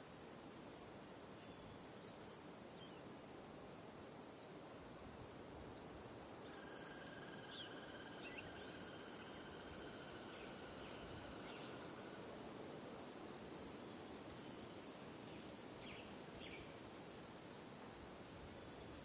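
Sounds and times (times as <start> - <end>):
low steady hiss: 0.0 - 19.0
insect trill: 6.4 - 19.0.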